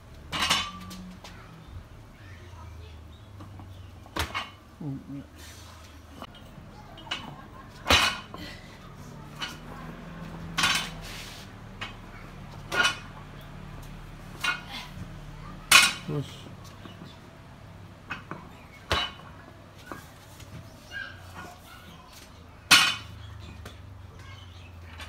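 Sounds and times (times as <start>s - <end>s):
barbell clanking: 0.3s - 1.0s, 10.6s - 11.0s, 12.7s - 13.2s, 15.7s - 16.1s.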